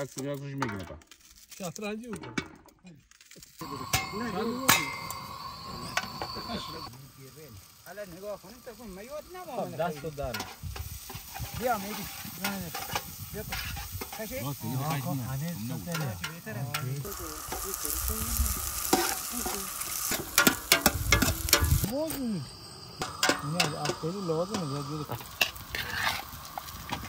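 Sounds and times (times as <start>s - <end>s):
onions sizzling in oil: 3.2s - 27.0s
spatula scraping a pot: 10.3s - 14.2s, 25.3s - 26.4s.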